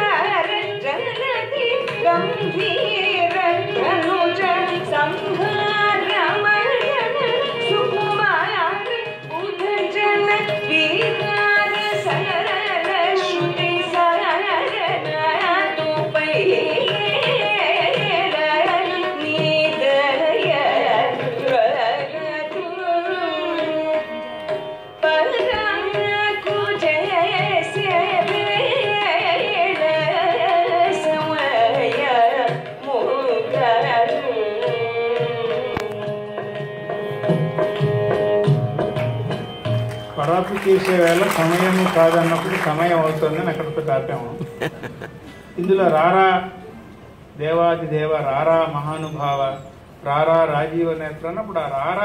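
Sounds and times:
woman singing: 0.0s - 24.4s, 25.0s - 36.5s
violin: 0.0s - 52.0s
hand drum playing: 35.3s - 40.0s, 42.8s - 45.4s.

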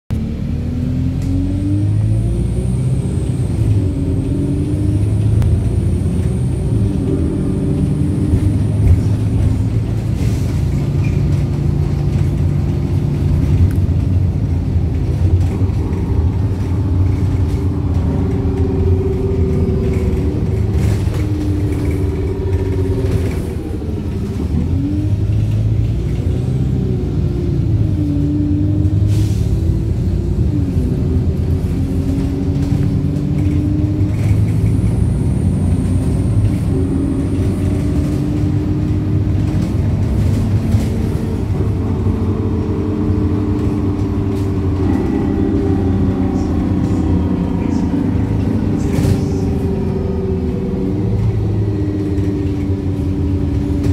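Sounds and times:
bus engine and road rumble: 0.1s - 53.9s.

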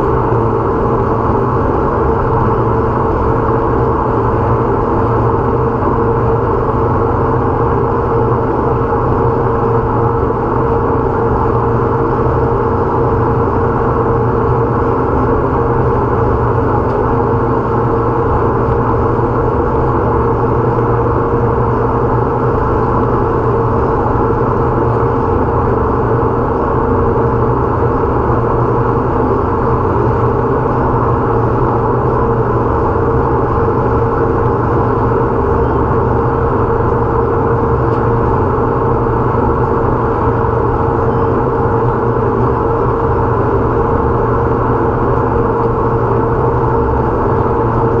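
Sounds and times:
boat engine droning: 0.0s - 48.0s.

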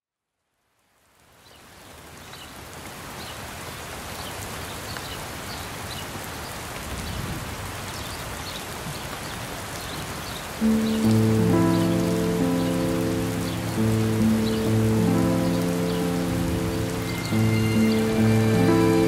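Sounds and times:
steady rain: 0.2s - 19.0s
raindrops ticking: 8.9s - 19.0s.

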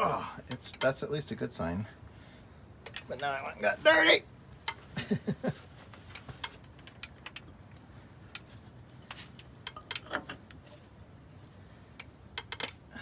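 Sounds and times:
light clicks and taps of tools: 0.5s - 1.0s, 2.6s - 3.3s, 4.6s - 4.8s, 5.9s - 10.8s, 11.9s - 12.8s.

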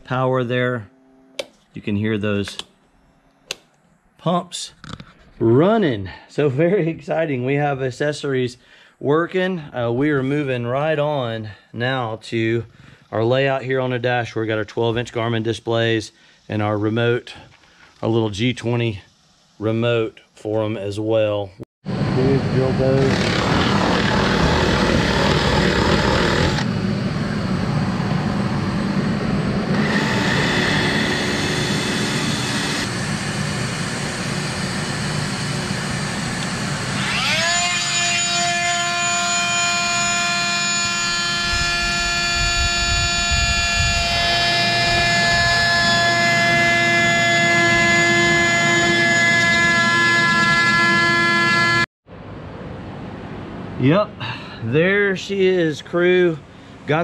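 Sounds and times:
oscillating tool buzzing: 22.4s - 26.8s, 28.4s - 51.9s
cordless drill boring: 22.7s - 26.7s, 29.7s - 51.8s.

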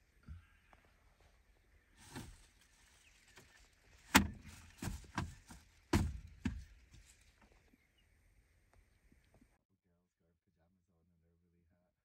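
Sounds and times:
dull knocks and thumps: 4.1s - 7.1s.

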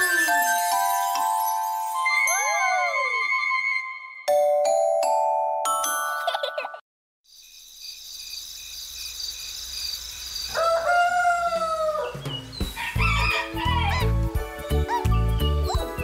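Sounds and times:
upbeat children's music: 0.0s - 6.7s, 12.9s - 16.0s
rooster crowing: 10.5s - 12.2s, 12.8s - 14.1s.

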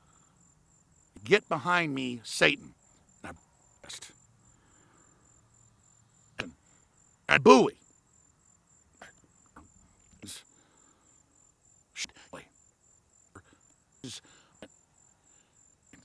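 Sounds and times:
crickets chirping: 0.0s - 16.0s
man breathy vocal sounds: 13.3s - 16.0s.

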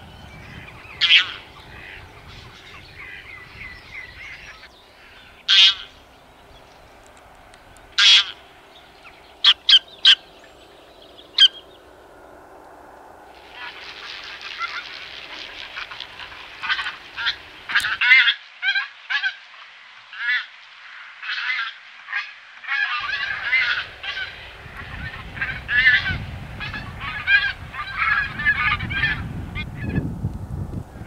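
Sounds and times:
goose honking: 5.0s - 6.0s, 8.0s - 8.4s, 13.5s - 19.4s, 21.2s - 30.0s.

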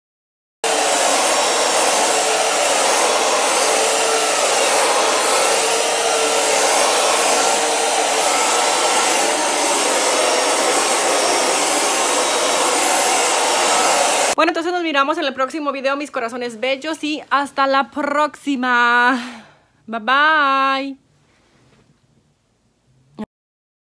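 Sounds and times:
carpet cleaner motor running: 0.6s - 14.4s.

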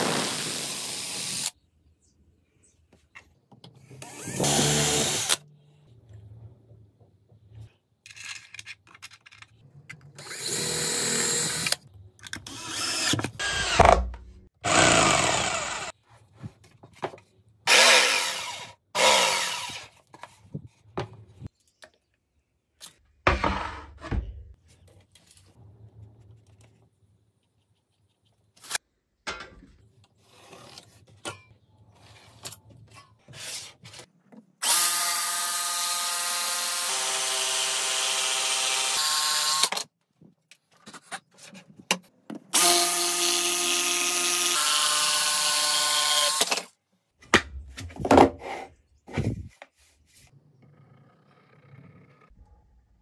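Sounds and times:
jigsaw cutting wood: 4.0s - 5.4s, 10.2s - 11.8s, 12.5s - 14.0s, 14.6s - 15.9s, 17.7s - 19.9s, 34.6s - 39.8s, 42.6s - 46.7s.

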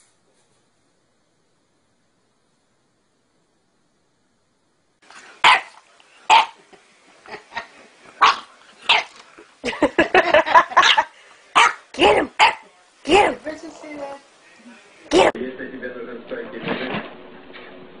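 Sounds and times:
dog barking: 5.4s - 6.6s, 8.2s - 9.2s, 10.7s - 12.6s.

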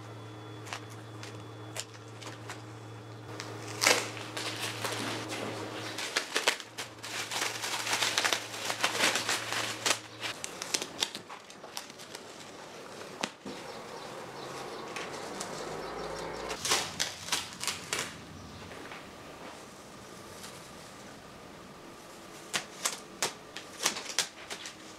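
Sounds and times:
masking tape peeling off metal: 3.3s - 13.3s, 14.4s - 18.2s.

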